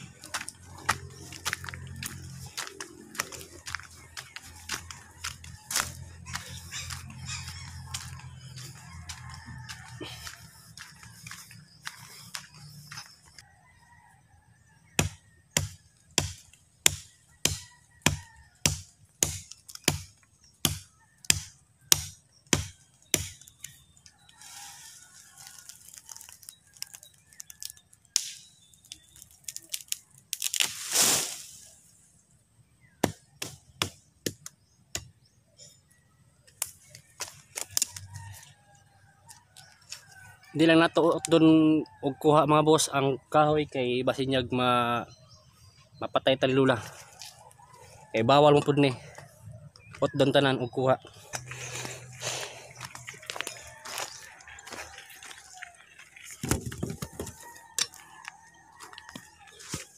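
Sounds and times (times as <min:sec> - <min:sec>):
machete chopping wood: 0:15.0 - 0:23.5, 0:33.0 - 0:35.1
rustling burst: 0:30.6 - 0:31.8.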